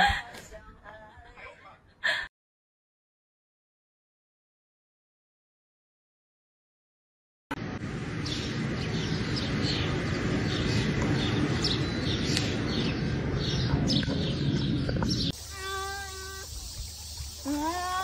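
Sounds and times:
low rushing noise: 0:07.5 - 0:15.3.

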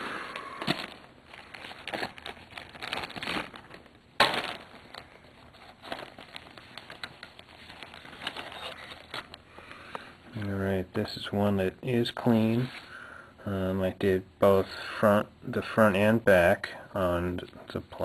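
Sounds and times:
loud plastic crackle: 0:00.2 - 0:09.4
plastic bags crinkling: 0:00.3 - 0:09.4.

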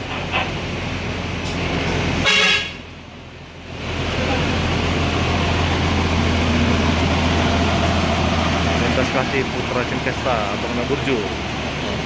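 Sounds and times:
bus engine running: 0:00.0 - 0:12.0
bus horn toot: 0:02.2 - 0:02.9.

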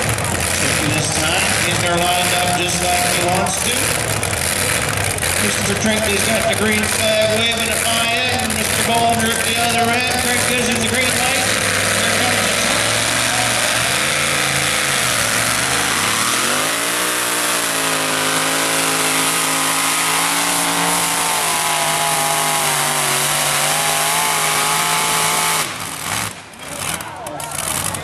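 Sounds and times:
truck engine at full throttle: 0:00.0 - 0:28.0.

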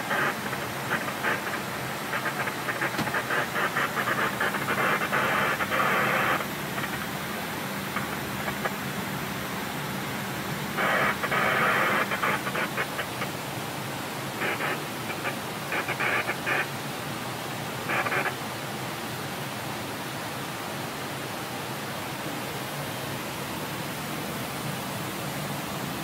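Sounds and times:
cockpit rush with low hum: 0:00.0 - 0:16.8
crackling hiss: 0:00.0 - 0:26.0.

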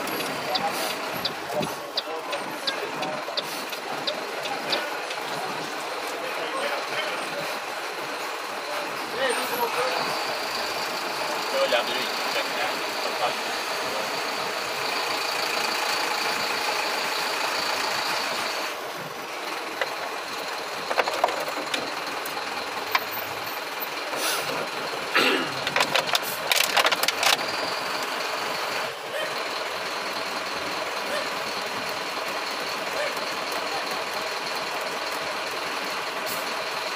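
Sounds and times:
vehicle engine and traffic: 0:00.0 - 0:36.9
sharp clicks and rattles: 0:19.6 - 0:24.0, 0:24.6 - 0:28.8.

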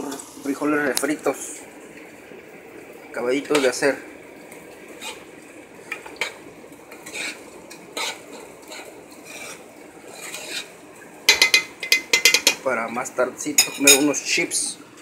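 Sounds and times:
spoon scraping metal pot: 0:05.0 - 0:05.3, 0:05.9 - 0:12.6
spoon stirring thick beans: 0:05.9 - 0:13.9.

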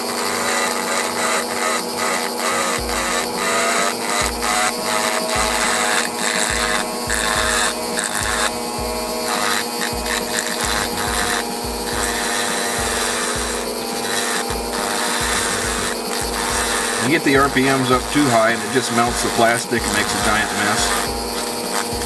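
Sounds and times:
rotary tool grinding plastic: 0:00.0 - 0:22.0
rotary tool motor whine: 0:00.0 - 0:22.0.

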